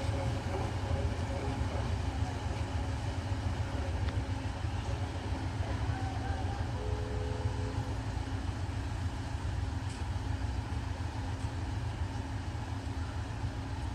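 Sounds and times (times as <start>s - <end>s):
low engine rumble: 0.0s - 13.9s
faint two-note tone: 5.9s - 8.0s.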